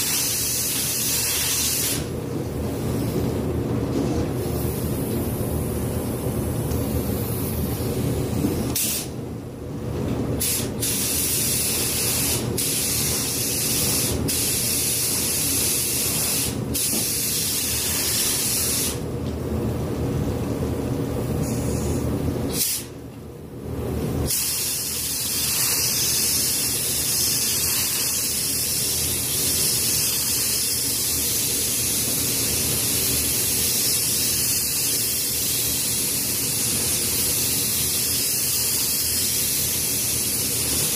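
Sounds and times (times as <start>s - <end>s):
steady low hum: 0.0s - 40.9s
paint spray gun hissing: 24.3s - 40.9s.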